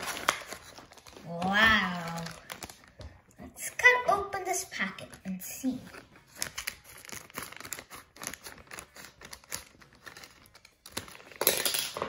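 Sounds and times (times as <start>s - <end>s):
scissors cutting plastic: 0.0s - 2.4s, 6.3s - 11.6s
plastic packet crinkling: 0.0s - 3.1s, 5.9s - 11.6s.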